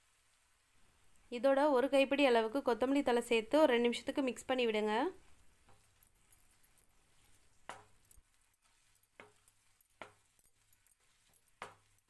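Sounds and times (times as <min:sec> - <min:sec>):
wooden spatula tapping pan: 0:06.6 - 0:12.0.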